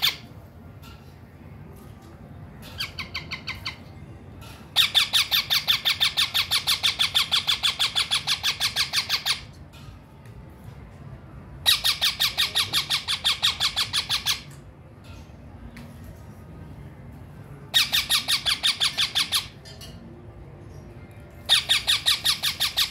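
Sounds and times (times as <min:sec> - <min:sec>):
parrot chicks squawking: 0:00.0 - 0:00.3, 0:02.6 - 0:03.9, 0:04.7 - 0:09.5, 0:11.6 - 0:14.6, 0:17.7 - 0:19.6, 0:21.4 - 0:22.9.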